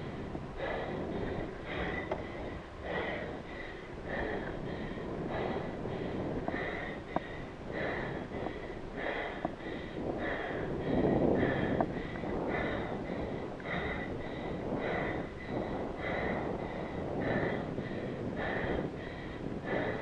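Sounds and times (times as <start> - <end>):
cyclist breathing hard: 0.0 - 20.0
wind rush on microphone: 0.0 - 20.0.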